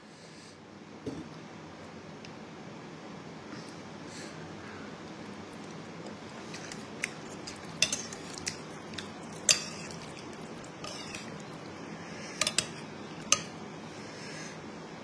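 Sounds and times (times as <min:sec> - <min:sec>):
spoon and chopsticks clinking bowl: 0:07.0 - 0:11.4, 0:12.4 - 0:13.5.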